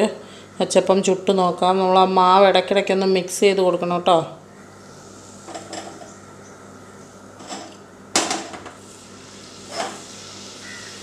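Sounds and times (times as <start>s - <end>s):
hot oil hissing: 8.4s - 11.0s
batter sizzling in oil: 8.7s - 11.0s.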